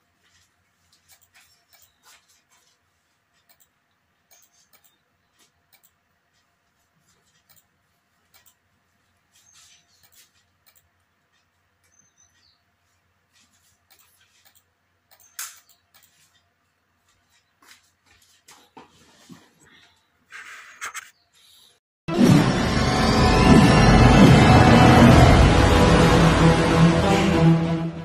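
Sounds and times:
faint computer clicks: 1.0s - 2.5s, 3.4s - 8.7s, 9.8s - 12.6s, 13.3s - 16.5s.

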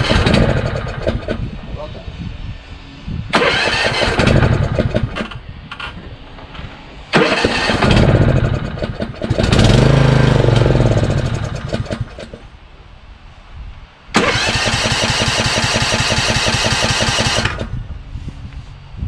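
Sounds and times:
engine cranking on starter: 0.0s - 1.5s, 3.3s - 5.4s, 7.1s - 12.5s, 14.2s - 17.8s.

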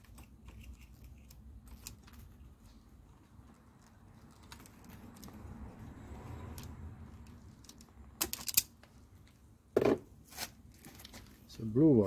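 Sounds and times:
plastic connectors clicking: 6.5s - 8.9s.

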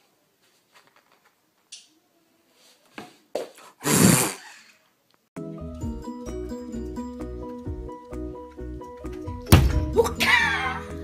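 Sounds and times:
music with a melody: 5.4s - 11.0s.

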